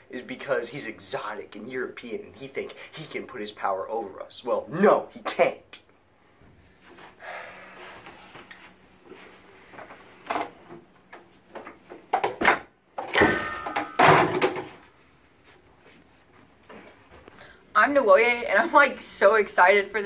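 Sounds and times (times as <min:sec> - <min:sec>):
knocks and rustling: 0:09.6 - 0:17.3.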